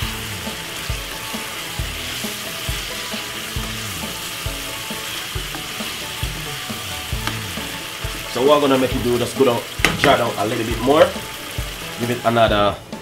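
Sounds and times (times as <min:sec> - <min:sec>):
food sizzling in a wok: 0:00.0 - 0:13.0.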